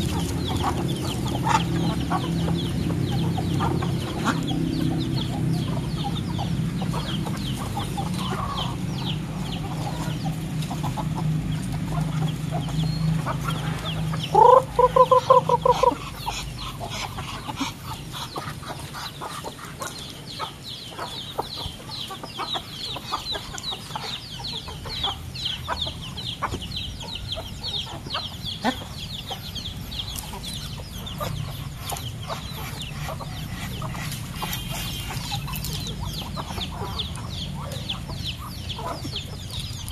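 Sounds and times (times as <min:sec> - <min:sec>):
chickens clucking: 0:00.0 - 0:39.9
loud pulsed chicken call: 0:14.3 - 0:16.0.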